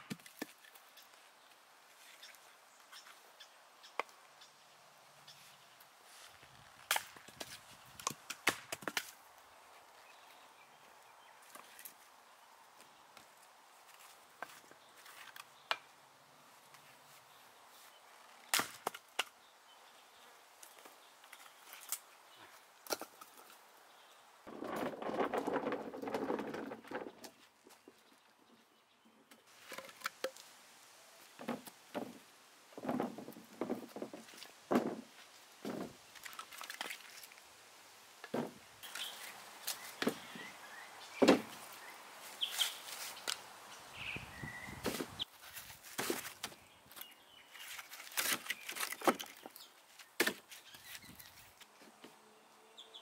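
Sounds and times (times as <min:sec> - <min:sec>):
firewood logs knocking: 0:24.5 - 0:27.5, 0:31.4 - 0:32.2, 0:32.8 - 0:36.0, 0:38.2 - 0:39.0, 0:41.2 - 0:41.6
wood knocks: 0:32.8 - 0:35.9.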